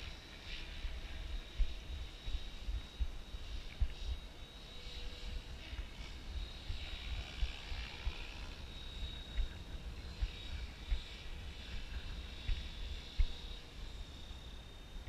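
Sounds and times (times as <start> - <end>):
rc helicopter motor whine: 0.0 - 15.0.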